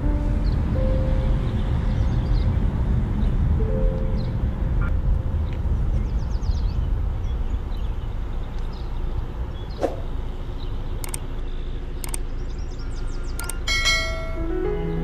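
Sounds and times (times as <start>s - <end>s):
car engine and road noise: 0.0s - 15.0s
sharp clicks: 11.0s - 11.3s, 12.0s - 12.3s, 13.4s - 13.6s.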